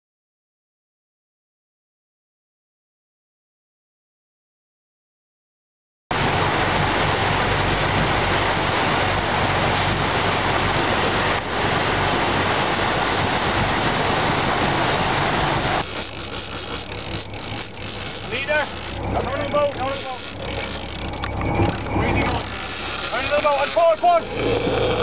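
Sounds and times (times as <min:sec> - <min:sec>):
wind on microphone: 0:06.1 - 0:19.3
boat engine drone: 0:06.1 - 0:25.0
wake water rushing: 0:06.1 - 0:25.0.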